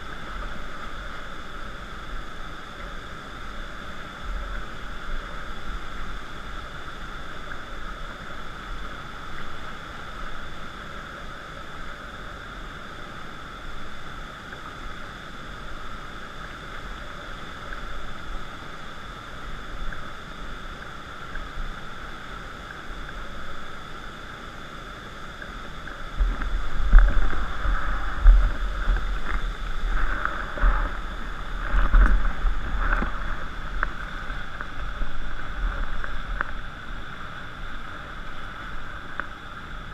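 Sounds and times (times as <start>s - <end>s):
muffled river rapids: 0.0s - 39.9s
raft knocking and buffeting: 26.2s - 36.6s.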